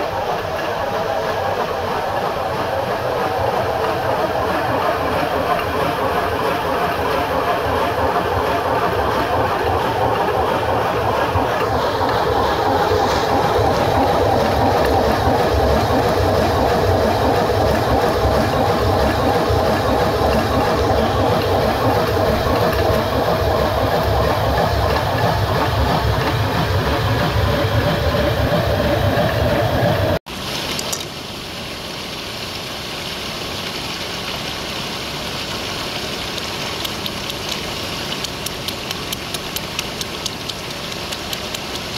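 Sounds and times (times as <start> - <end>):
stone mill rumbling clatter: 0.0 - 30.2, 36.3 - 41.9
mountain stream rushing: 29.3 - 41.9.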